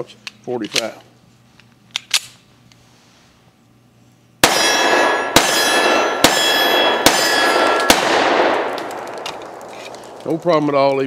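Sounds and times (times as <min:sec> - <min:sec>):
pistol shots ringing: 0:04.4 - 0:10.5.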